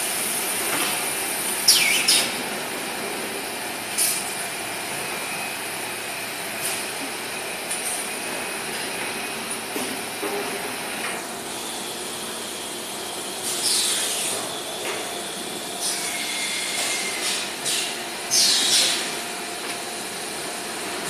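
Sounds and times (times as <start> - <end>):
bagging machine humming: 0.0 - 21.0.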